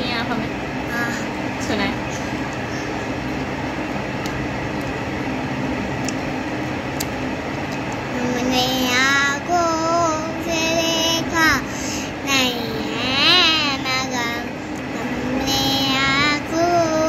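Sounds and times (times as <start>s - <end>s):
steady background hum: 0.0s - 17.0s
girl singing: 8.1s - 17.0s.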